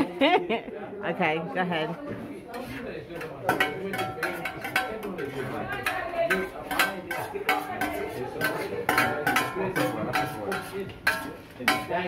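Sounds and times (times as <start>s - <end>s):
metal spoon clinking on steel bowl: 2.5s - 12.0s.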